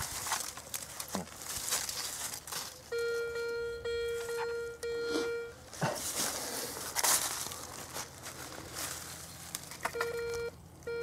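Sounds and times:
hand digging soil and leaves: 0.0s - 3.4s, 5.1s - 10.5s
metal detector beep: 2.9s - 5.6s, 9.9s - 11.0s.

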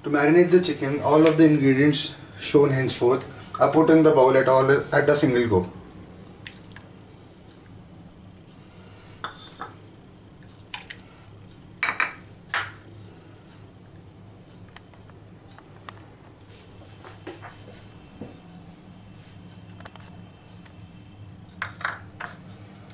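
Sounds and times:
containers clinking on glass bowl: 9.2s - 9.8s, 11.8s - 12.9s.

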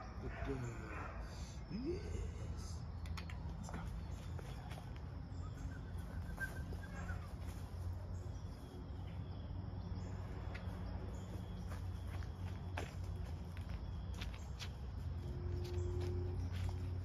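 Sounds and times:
faint bird chirps: 0.5s - 12.2s.

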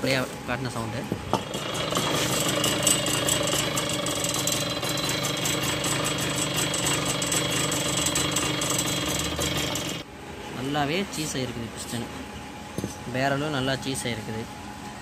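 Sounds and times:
moped engine knocking rattle: 1.3s - 10.0s.

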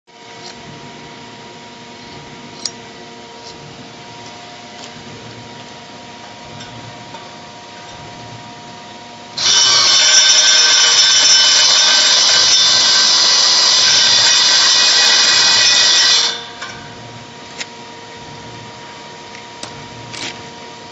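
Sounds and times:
room hum: 0.1s - 20.9s
power tool running: 9.3s - 17.2s.

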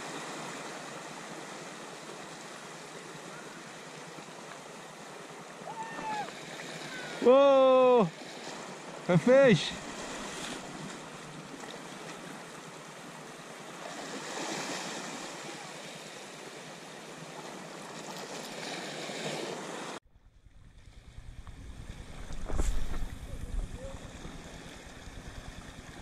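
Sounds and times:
sea surf washing onto shore: 5.6s - 12.6s.

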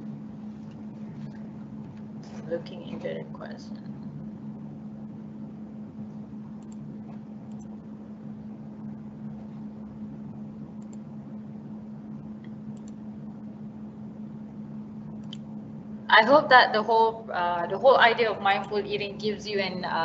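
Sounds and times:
low hum: 0.0s - 20.0s
faint clicks: 12.4s - 13.0s.

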